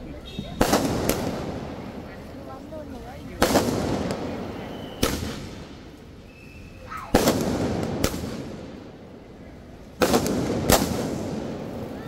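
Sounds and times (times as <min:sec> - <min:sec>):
fireworks bursting: 0:00.0 - 0:02.4, 0:03.2 - 0:09.2, 0:09.8 - 0:12.0
quick firework pops: 0:00.5 - 0:01.6, 0:03.4 - 0:05.6, 0:07.0 - 0:08.6, 0:10.0 - 0:11.6.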